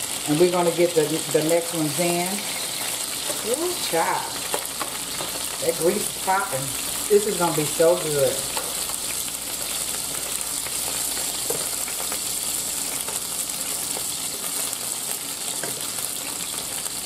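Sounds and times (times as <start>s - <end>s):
chicken sizzling in a frying pan: 0.0s - 17.0s
grease popping: 2.8s - 17.0s.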